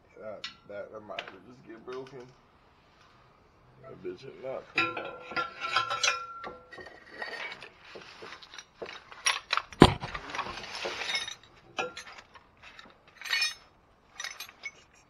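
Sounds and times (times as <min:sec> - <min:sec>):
metal tools knocking on exhaust pipe: 0:04.8 - 0:07.0.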